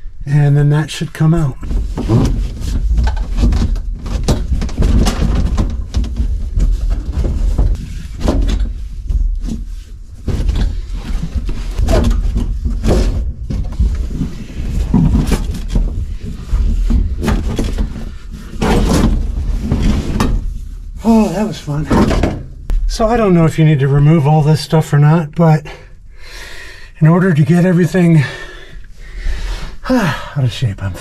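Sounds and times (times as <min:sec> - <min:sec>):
clunks and knocks: 0:01.6 - 0:20.8, 0:21.6 - 0:23.0
scraping: 0:01.6 - 0:24.4.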